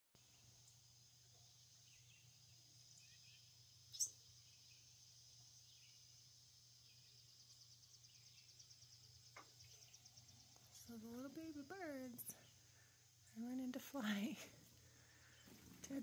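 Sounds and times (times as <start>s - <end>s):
insect chorus buzzing and trilling: 0.2s - 16.0s.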